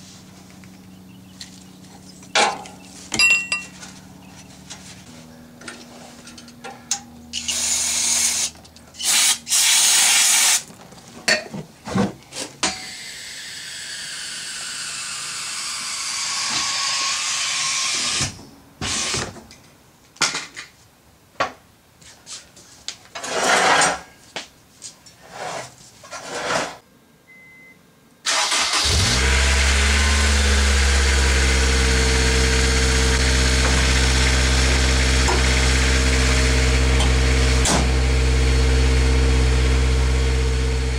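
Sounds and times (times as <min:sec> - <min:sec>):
car engine starting and idling: 0:28.3 - 0:40.9.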